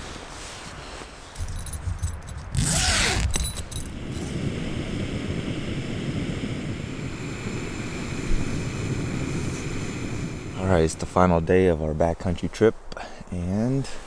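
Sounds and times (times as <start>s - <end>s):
handling noise: 1.0s - 4.0s
tent zipper pulled open: 1.4s - 4.4s
strong wind rushing: 1.4s - 11.7s.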